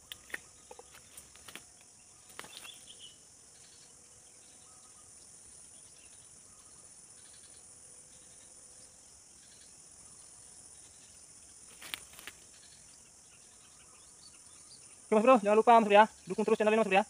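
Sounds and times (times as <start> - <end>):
dry twigs clicking and rustling: 0.0 - 2.8, 11.7 - 12.4
insects droning: 0.0 - 17.0.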